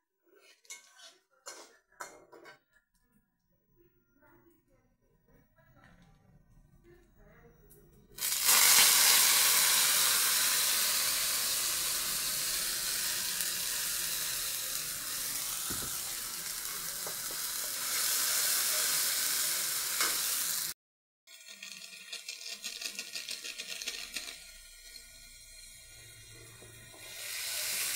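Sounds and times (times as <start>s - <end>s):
metal spatula stirring: 0.3s - 2.6s
paste sizzling in hot oil: 8.2s - 27.9s.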